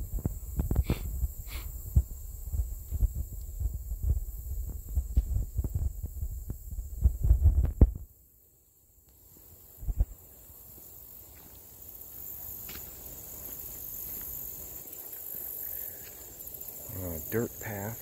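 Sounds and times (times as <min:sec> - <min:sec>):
high-pitched insect chorus: 0:00.0 - 0:18.0.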